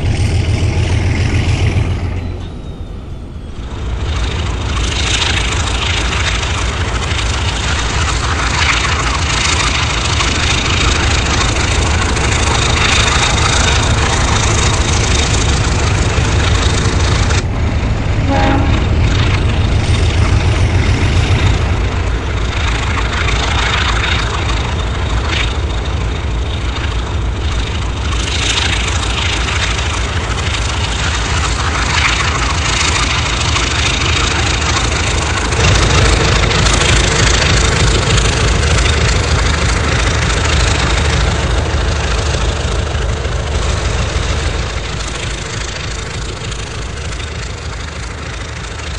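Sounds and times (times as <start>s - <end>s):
diesel locomotive rumbling: 0.0s - 48.9s
brief tone: 1.5s - 3.7s, 18.1s - 19.7s.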